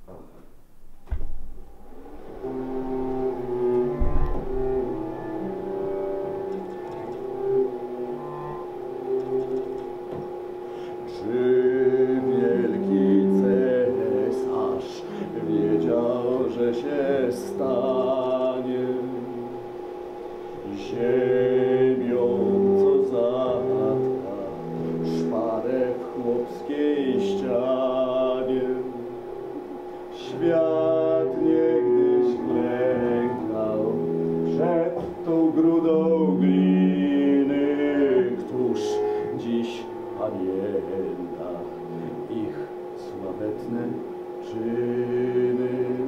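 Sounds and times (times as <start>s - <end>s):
steady held drone: 1.5s - 46.0s
man singing slow song: 11.0s - 19.5s, 20.6s - 46.0s.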